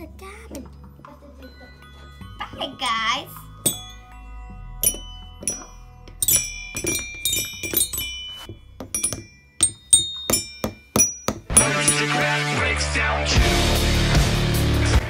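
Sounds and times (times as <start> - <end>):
toy xylophone notes: 1.2 - 12.4.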